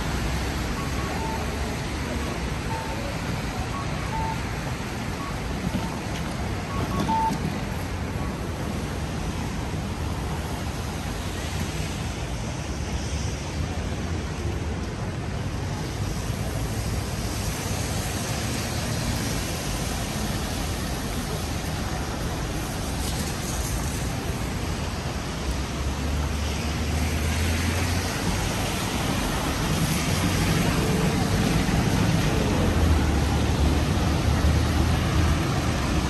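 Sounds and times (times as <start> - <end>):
traffic on wet roads: 0.0 - 36.0
short faint beeps: 0.7 - 7.5.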